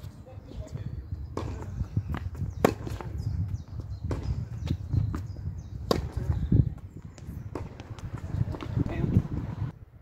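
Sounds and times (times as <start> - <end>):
rackets striking tennis ball: 2.6 - 3.2, 4.0 - 4.4, 5.8 - 6.4, 7.5 - 8.7
ball bouncing: 7.4 - 8.7.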